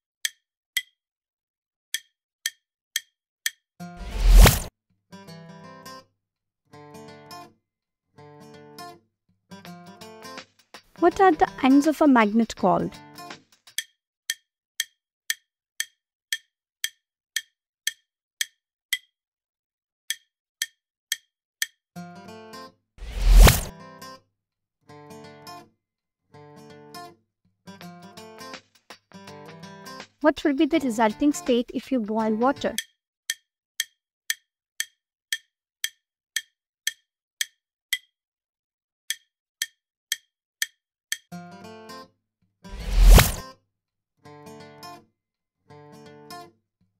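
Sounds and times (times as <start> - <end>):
countdown timer ticking: 11.0 - 13.1, 30.2 - 32.9.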